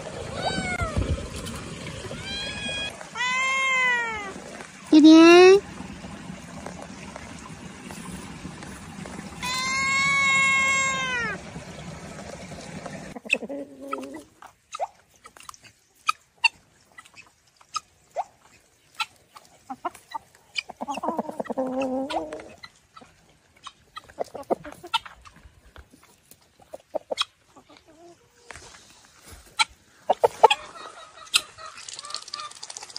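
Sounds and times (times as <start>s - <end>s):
cat meowing: 0.3s - 1.0s, 2.2s - 4.4s, 9.4s - 11.4s
hens clucking: 7.7s - 14.9s, 18.9s - 32.6s
wavering hen call: 9.4s - 11.4s.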